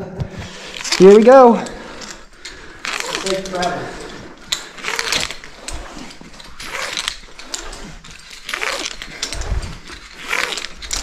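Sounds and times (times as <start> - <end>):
heavy breathing: 0.3 - 6.6
ascender rasping up rope: 0.4 - 11.0.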